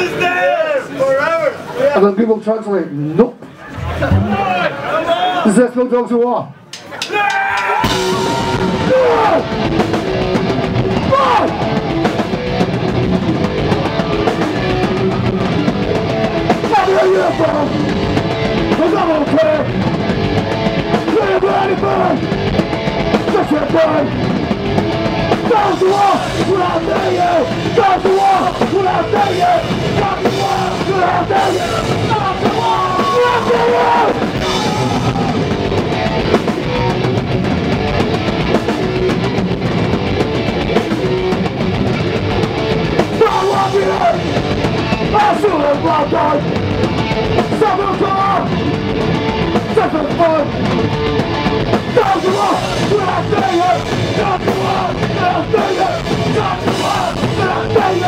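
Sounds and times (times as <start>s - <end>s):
drum kit: 3.6s - 4.9s, 6.8s - 58.0s
electric guitar: 7.6s - 58.0s
person singing into a microphone: 52.0s - 58.0s.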